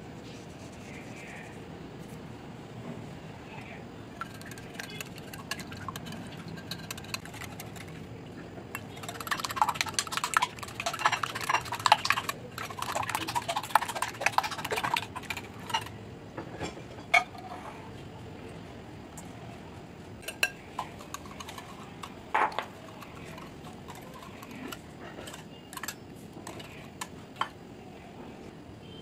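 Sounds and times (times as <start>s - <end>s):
whisk beating eggs in glass bowl: 4.2s - 8.1s, 8.7s - 15.9s, 20.2s - 27.5s.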